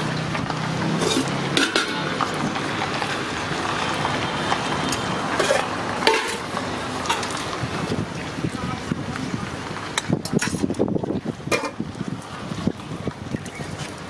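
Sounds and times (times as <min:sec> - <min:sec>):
street noise: 0:00.0 - 0:14.0
spoons clinking on steel pots: 0:00.8 - 0:02.3, 0:04.9 - 0:07.4, 0:11.5 - 0:11.8.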